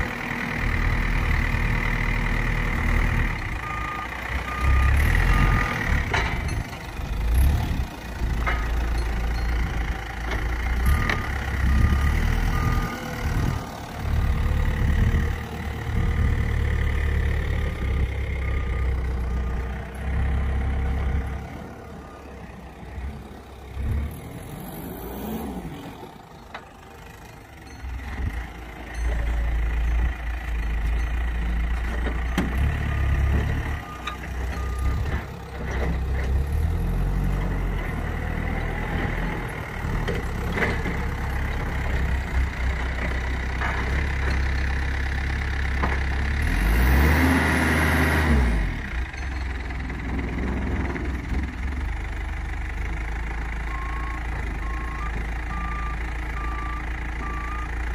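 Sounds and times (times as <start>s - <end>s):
vehicle engine rumble: 0.0s - 57.9s
back-up alarm beeping: 10.9s - 15.0s, 53.7s - 57.8s.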